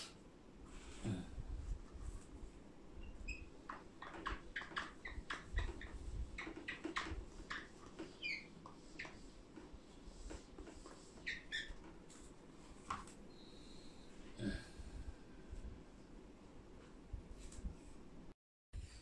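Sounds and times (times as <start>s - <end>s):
eraser squeaks: 3.0s - 9.3s, 11.0s - 11.8s.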